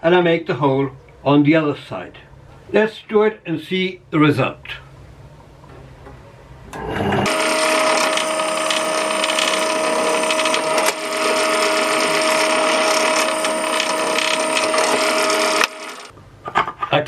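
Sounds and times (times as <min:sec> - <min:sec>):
drill press drilling wood: 0:07.2 - 0:16.1.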